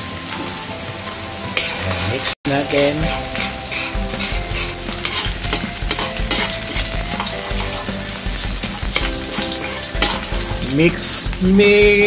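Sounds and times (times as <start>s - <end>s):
garlic sizzling in hot oil: 0.0s - 12.0s
metal ladle scraping wok: 1.6s - 11.1s.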